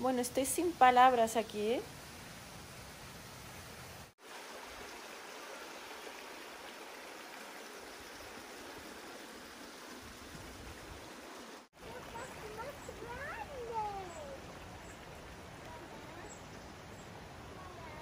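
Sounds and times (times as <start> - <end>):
stream water rushing: 0.0 - 18.0.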